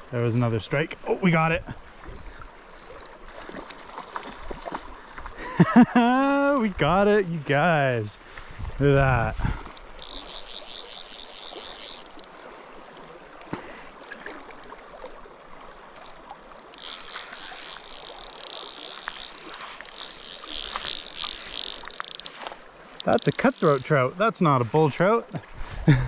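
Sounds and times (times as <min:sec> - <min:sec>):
stream water running: 0:00.0 - 0:26.0
fishing reel ratchet clicking: 0:09.7 - 0:12.4, 0:16.0 - 0:23.9.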